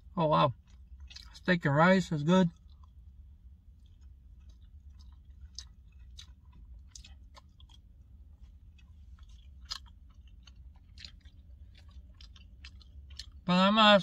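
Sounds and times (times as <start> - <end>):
person chewing food: 0.0 - 1.5, 2.5 - 13.5
steady low hum: 0.0 - 14.0
wet mouth clicks and smacks: 0.7 - 1.4, 3.8 - 7.8, 8.8 - 13.4.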